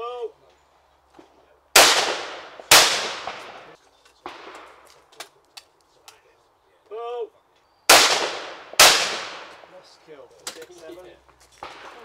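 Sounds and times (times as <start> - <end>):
shotgun report: 1.8 - 5.1, 7.9 - 9.8.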